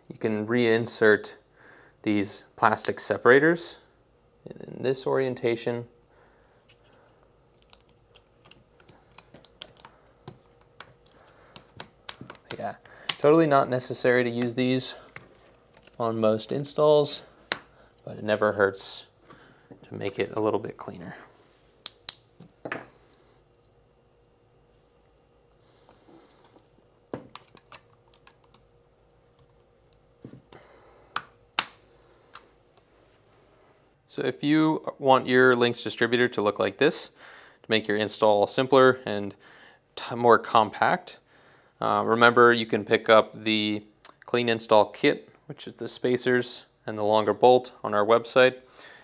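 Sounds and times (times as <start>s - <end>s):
plastic parts clicking into place: 7.6s - 13.2s.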